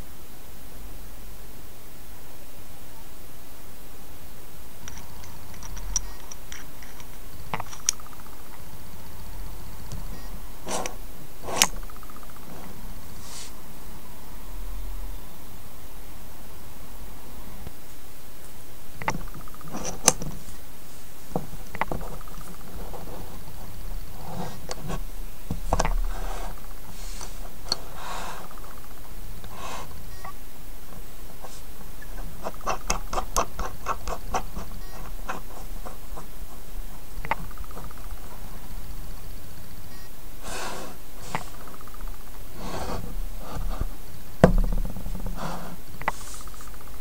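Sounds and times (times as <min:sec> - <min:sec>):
background hiss: 0:00.0 - 0:47.0
steady low hum: 0:00.0 - 0:47.0
phone mount rustling scrapes: 0:09.4 - 0:13.5, 0:21.4 - 0:28.8, 0:42.5 - 0:46.7
sharp knock: 0:44.4 - 0:45.5.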